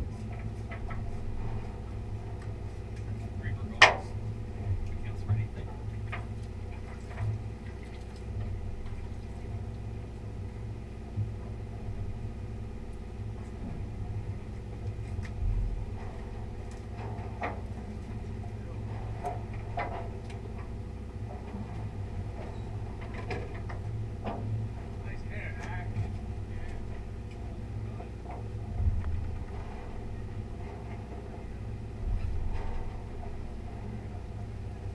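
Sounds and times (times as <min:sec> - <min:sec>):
boat engine humming: 0:00.0 - 0:34.9
faint knocks and clicks: 0:28.0 - 0:31.4.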